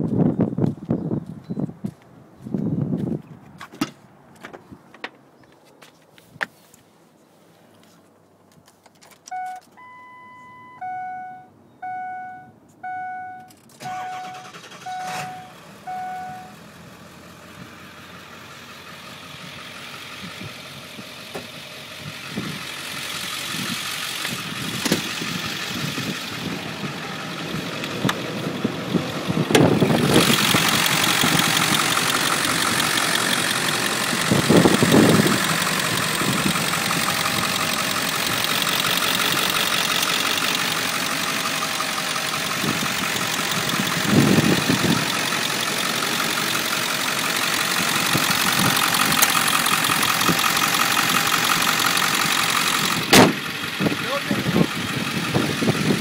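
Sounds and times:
dashboard warning chime: 9.3 - 16.6
diesel engine idling: 9.8 - 56.0.

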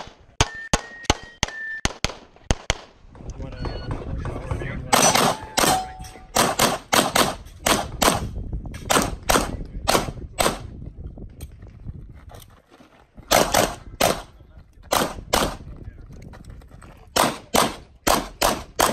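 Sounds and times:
rapid pistol shots: 4.9 - 8.3, 8.9 - 10.7, 13.3 - 14.3, 14.9 - 15.6, 17.2 - 18.9.

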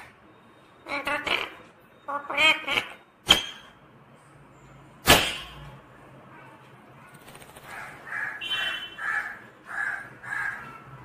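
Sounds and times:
parakeet calling: 0.8 - 3.1, 7.7 - 10.9.

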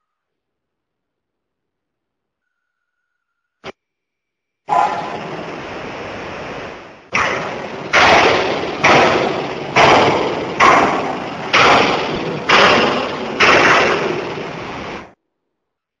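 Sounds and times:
rush of noise: 4.7 - 15.2
heavy thumps: 7.1 - 15.1.

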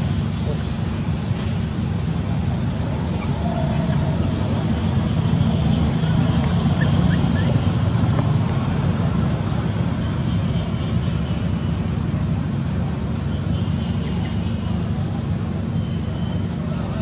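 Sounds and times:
low rumble and hiss: 0.0 - 10.9.

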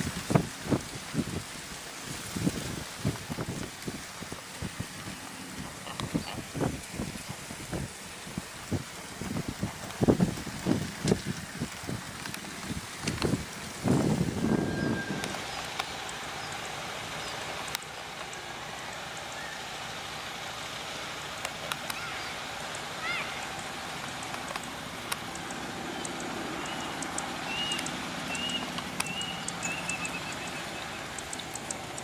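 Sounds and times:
wind rumble on microphone: 0.0 - 16.6
steady hiss: 0.0 - 32.0
faint clicks: 12.1 - 13.4, 17.2 - 19.4, 21.4 - 22.1, 24.0 - 30.5, 31.1 - 32.0.

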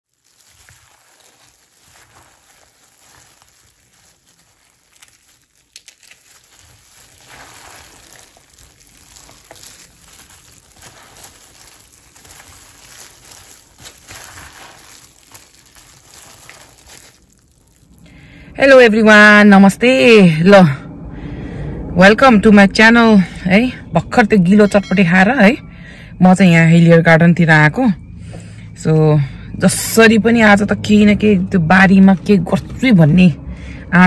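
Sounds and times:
noodles and vegetables rustling: 0.0 - 18.2
plastic glove crinkling: 0.0 - 18.3.

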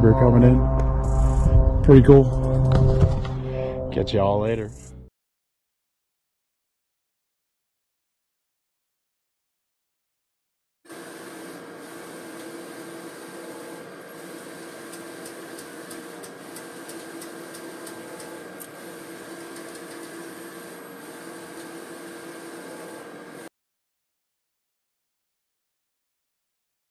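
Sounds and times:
printer hum and whirr: 10.9 - 23.5.

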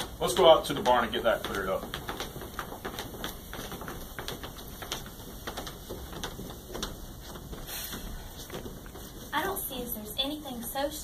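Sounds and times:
footsteps on hollow wooden stage: 0.0 - 11.0.

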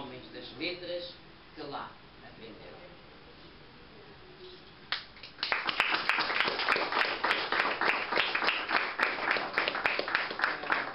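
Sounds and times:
audience applauding: 5.2 - 10.9.

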